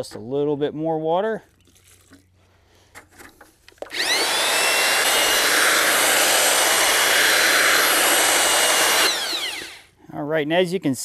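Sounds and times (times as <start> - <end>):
drill with paddle mixer whining: 3.8 - 10.0
mortar churning in bucket: 3.9 - 9.6.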